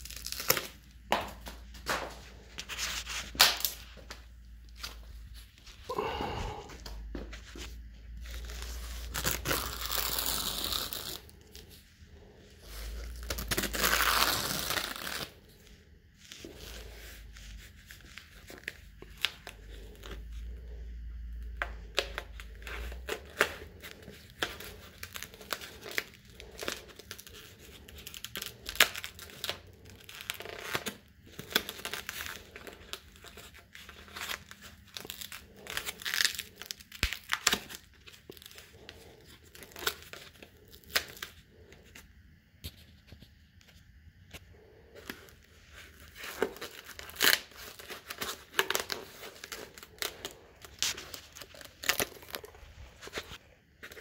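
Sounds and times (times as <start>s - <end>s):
foam crinkles and clicks: 21.4s - 42.0s, 45.0s - 54.0s.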